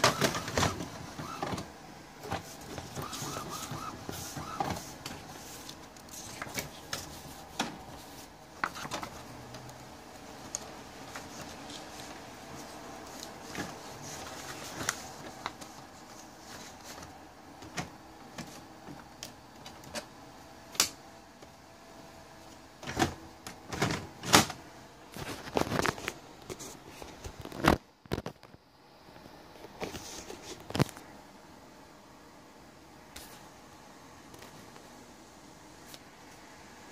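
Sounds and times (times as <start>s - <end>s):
printer clicks and clunks: 0.0s - 5.3s
printer motor whir: 0.0s - 6.0s.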